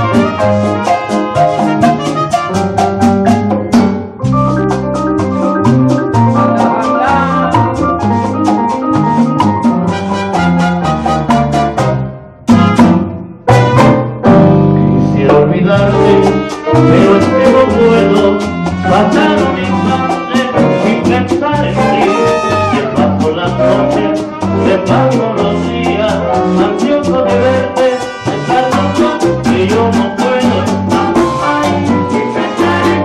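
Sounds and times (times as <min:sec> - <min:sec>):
trumpets: 0:00.0 - 0:03.1, 0:09.8 - 0:14.2, 0:16.0 - 0:21.2, 0:21.8 - 0:23.3, 0:23.9 - 0:25.3, 0:27.7 - 0:29.8
congas timbales and guiro rhythm: 0:00.0 - 0:33.0
electric bass: 0:00.0 - 0:33.0
keyboard: 0:00.0 - 0:33.0
salsa band playing: 0:00.0 - 0:33.0.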